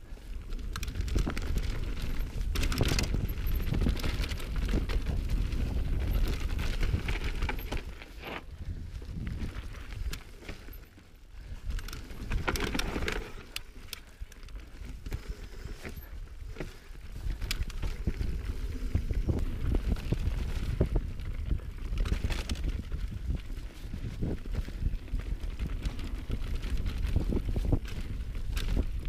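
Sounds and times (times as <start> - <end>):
bike tyres rolling over dirt: 0.0 - 29.0
wind rumbling on microphone: 0.0 - 29.0
bike knocks and rattles: 0.5 - 8.5, 11.7 - 14.0.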